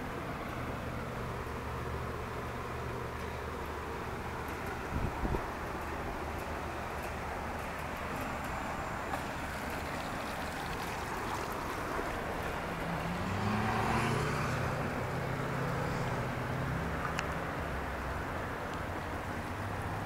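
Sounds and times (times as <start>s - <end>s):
outboard motor running: 1.0s - 14.0s.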